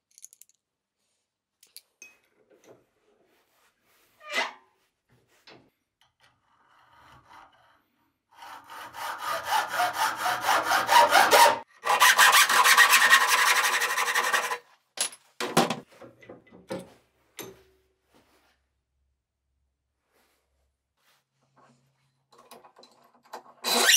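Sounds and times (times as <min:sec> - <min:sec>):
hacksaw cutting copper tube: 0:08.4 - 0:14.6, 0:23.6 - 0:23.9.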